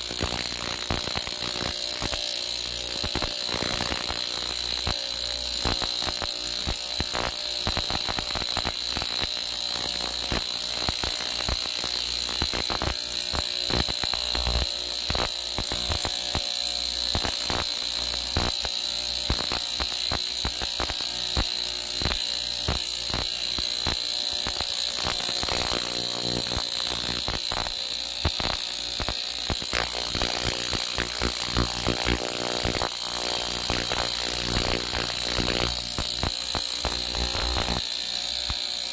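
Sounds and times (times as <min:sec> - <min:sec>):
ultrasonic cleaner whine: 0:24.9 - 0:38.7.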